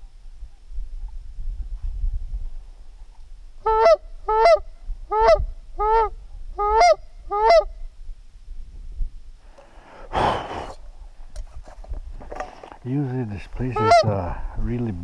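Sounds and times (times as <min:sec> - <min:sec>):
goose honking: 0:03.6 - 0:07.7, 0:13.6 - 0:14.2.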